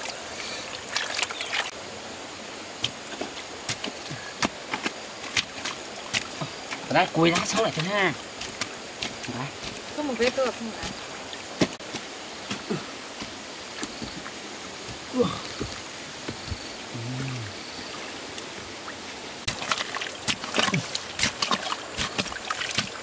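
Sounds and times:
stream water running: 0.0 - 23.0
pole jabbing into muddy water: 19.5 - 23.0.

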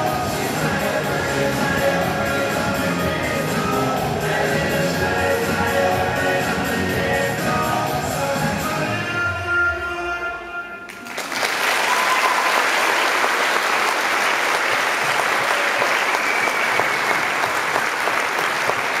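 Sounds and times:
music: 0.0 - 10.9
audience applauding: 10.9 - 19.0.

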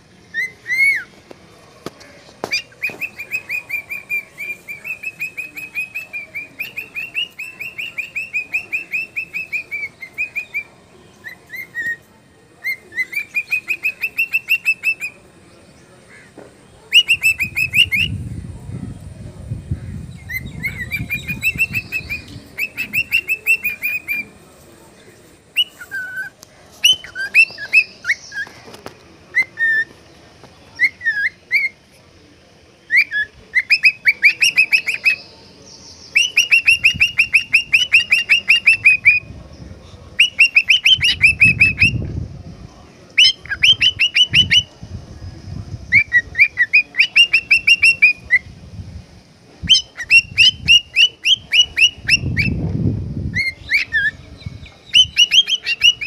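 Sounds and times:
cockatiel chirping: 2.4 - 12.0, 12.6 - 15.2, 16.9 - 18.1, 20.3 - 24.2, 25.6 - 28.5, 32.9 - 35.2, 36.1 - 39.2, 40.2 - 42.0, 43.2 - 44.7, 45.9 - 48.4, 49.7 - 52.6, 53.3 - 54.2, 54.9 - 56.0.

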